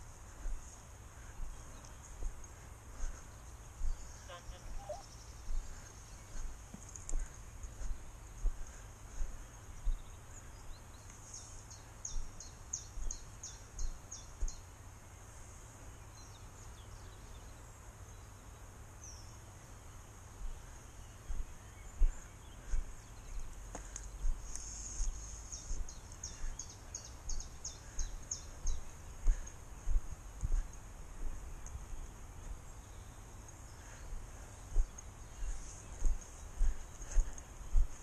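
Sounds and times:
songbird trilling: 3.9 - 5.2
steady high hiss: 23.0 - 36.6.

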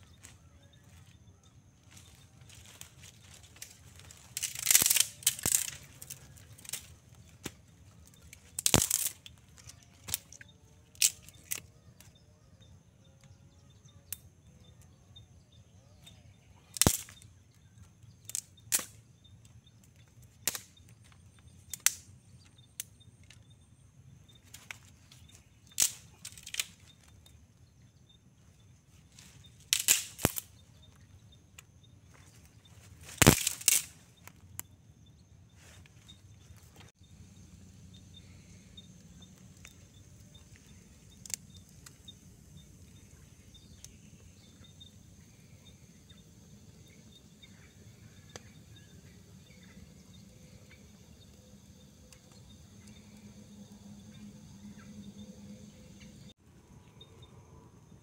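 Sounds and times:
dry sticks snapping and crackling: 1.8 - 12.2, 16.0 - 23.6, 24.3 - 27.4, 29.1 - 34.8, 38.2 - 44.2, 48.2 - 48.9.

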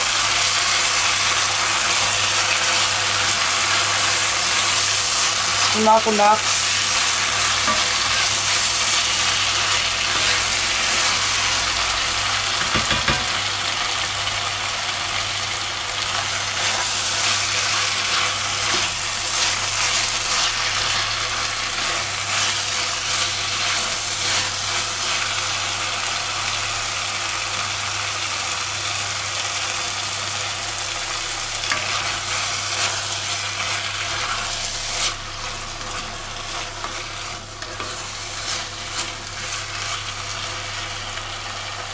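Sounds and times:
vegetables sizzling in a pot: 0.0 - 41.9
spatula stirring and scraping: 1.6 - 11.6, 16.2 - 25.4, 31.6 - 40.6.

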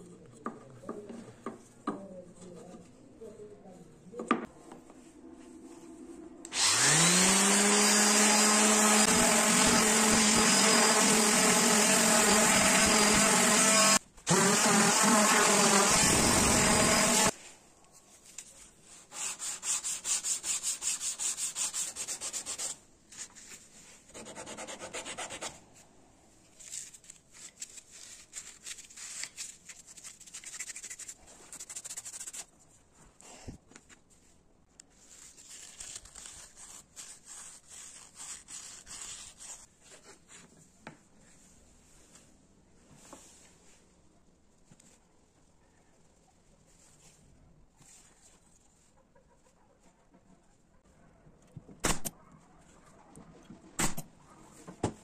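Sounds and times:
electric power tool motor: 6.5 - 17.3
hand sanding with sandpaper: 18.9 - 23.4, 27.4 - 32.5, 35.1 - 39.7.

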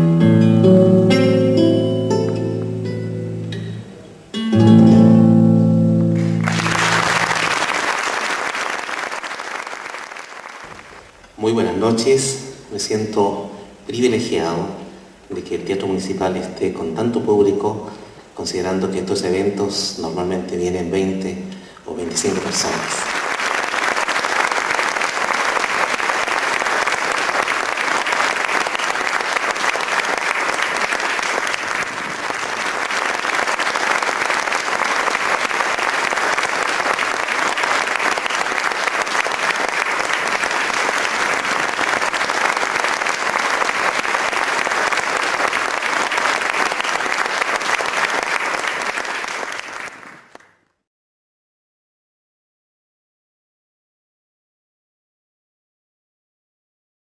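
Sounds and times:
audience applauding: 6.2 - 11.1, 22.2 - 50.6.

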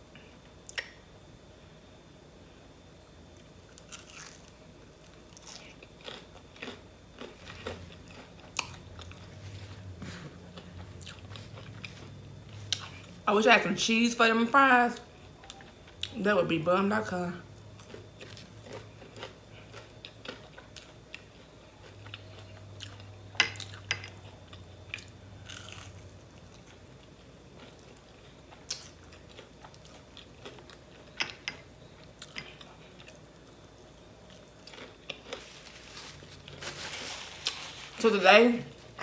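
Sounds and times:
person chewing crunchy food: 3.7 - 13.2, 17.6 - 38.0.

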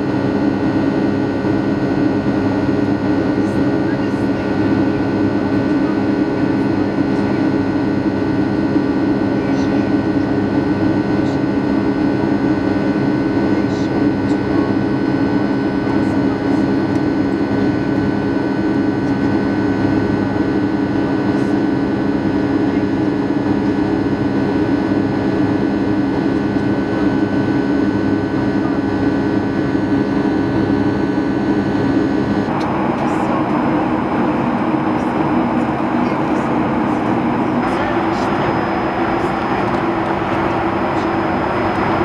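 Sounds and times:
jet engine and airflow rush: 0.0 - 15.9, 23.2 - 42.0
steady whining tones: 18.8 - 42.0.

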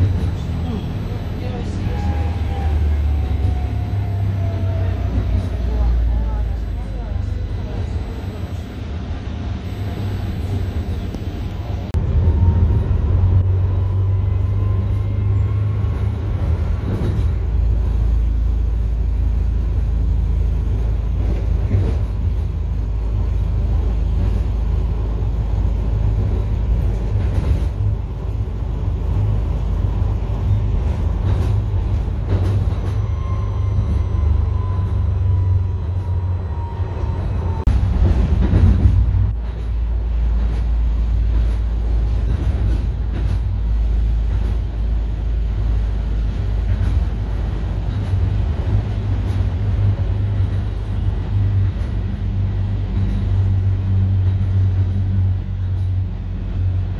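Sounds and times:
tram wheels rumbling on rails: 0.0 - 56.9
rail clicks: 15.6 - 56.9.

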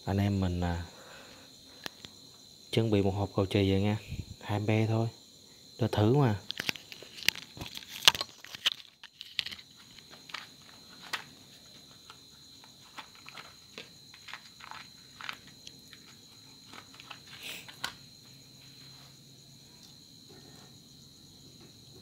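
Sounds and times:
cricket trill: 0.0 - 22.0
small clicks and taps of parts: 6.4 - 11.3.

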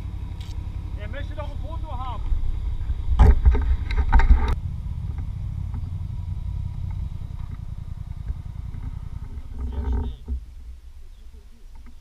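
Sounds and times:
quad engine chugging at low revs: 0.0 - 10.8.

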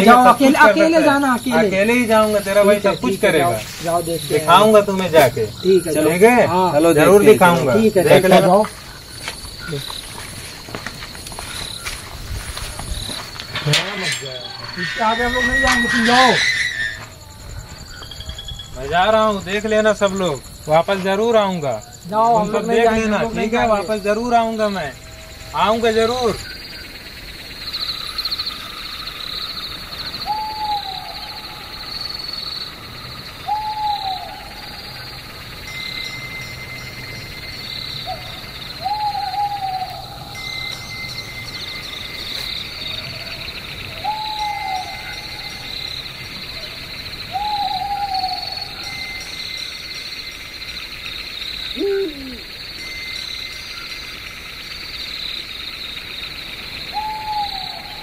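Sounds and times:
night insects chirring: 0.0 - 58.0
owl hooting: 27.7 - 41.8, 42.8 - 49.6, 51.6 - 52.8, 56.8 - 58.0.

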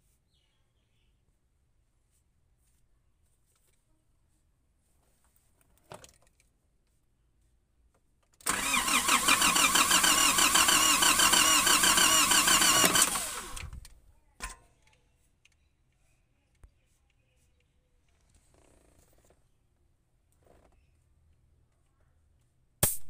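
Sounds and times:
diesel engine cranking: 8.4 - 13.8.

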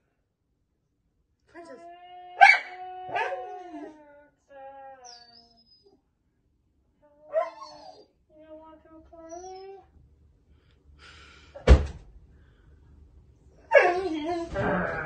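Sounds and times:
dog whining: 1.6 - 6.0, 7.2 - 8.1, 9.1 - 9.9, 13.6 - 15.0
dog barking: 2.4 - 3.4.

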